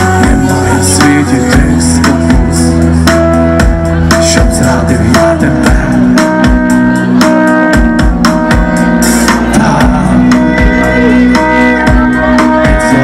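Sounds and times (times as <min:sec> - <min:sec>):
bass guitar: 0:00.0 - 0:13.0
violin: 0:05.2 - 0:13.0.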